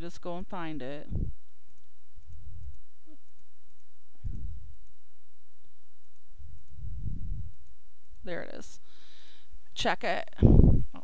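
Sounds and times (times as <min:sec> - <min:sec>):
computer mouse clicking: 0:01.6 - 0:05.0, 0:06.0 - 0:06.8
dull low thumps: 0:04.1 - 0:04.7, 0:06.6 - 0:07.6, 0:10.4 - 0:11.0.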